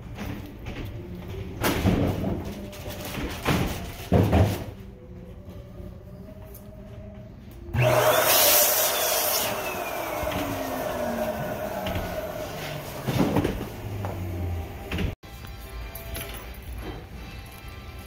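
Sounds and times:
partition panels rolling rumble: 9.6s - 15.2s.

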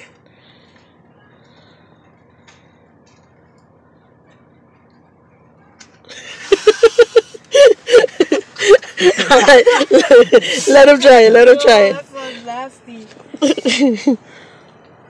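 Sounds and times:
young woman laughing: 6.1s - 11.0s, 13.4s - 14.2s.

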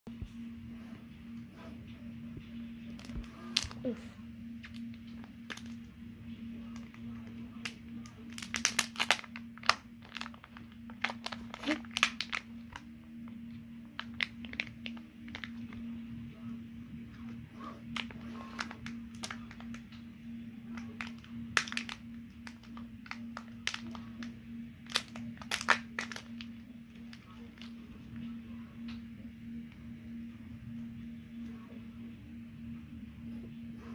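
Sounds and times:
faint steady hum: 0.1s - 33.9s
plastic wrapper crinkling: 3.0s - 3.8s, 4.6s - 5.9s, 6.6s - 12.9s, 13.8s - 15.8s, 17.9s - 19.9s, 20.7s - 27.8s.

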